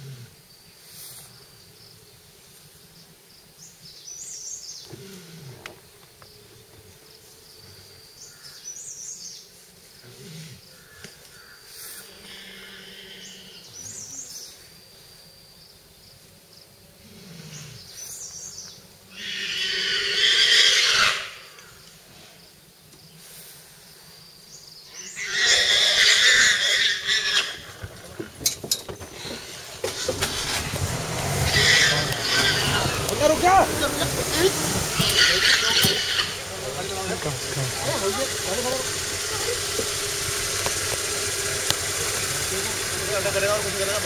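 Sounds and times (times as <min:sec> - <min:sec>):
harsh animal cries: 0:12.0 - 0:13.7, 0:19.1 - 0:21.6, 0:25.0 - 0:27.8, 0:31.3 - 0:39.8.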